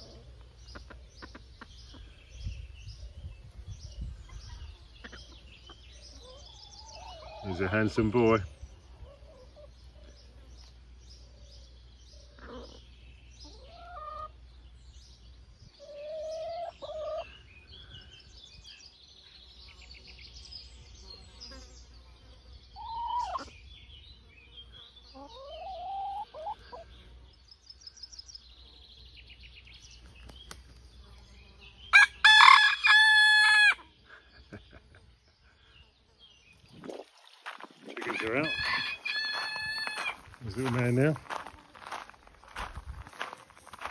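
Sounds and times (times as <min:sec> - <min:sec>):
chickens clucking: 0:00.0 - 0:02.6, 0:04.0 - 0:10.4, 0:12.2 - 0:14.4, 0:15.8 - 0:17.4, 0:22.8 - 0:23.6, 0:25.1 - 0:26.9, 0:37.4 - 0:43.9
small birds chirping: 0:00.0 - 0:43.9
rooster crowing: 0:32.0 - 0:33.8, 0:38.0 - 0:40.2.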